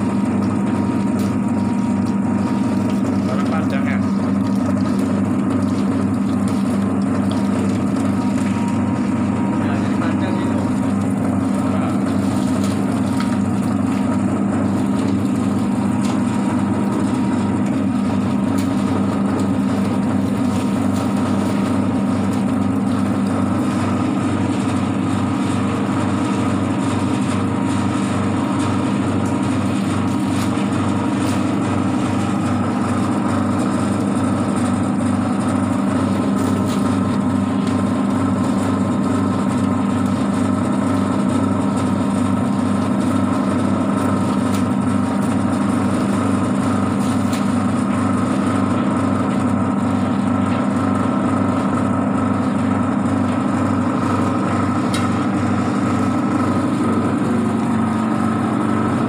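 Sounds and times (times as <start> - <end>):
low motor hum: 0.0 - 59.0.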